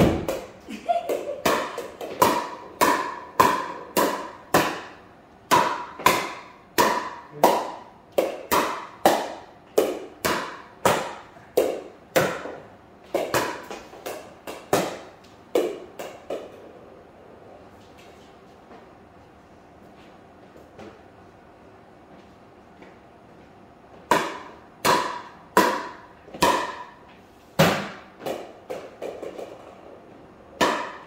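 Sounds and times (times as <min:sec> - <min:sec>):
paddle hitting plastic ball: 0:01.1 - 0:16.6, 0:24.0 - 0:27.0, 0:30.6 - 0:31.0.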